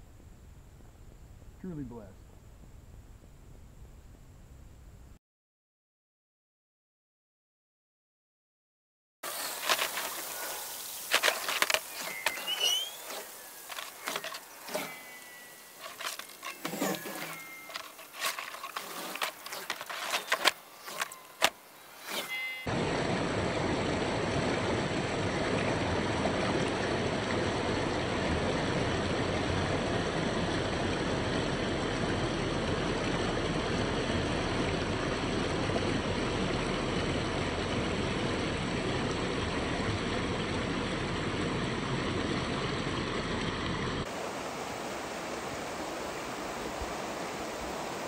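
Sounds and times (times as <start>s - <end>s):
river water rushing over rocks: 9.3s - 23.4s, 44.0s - 48.0s.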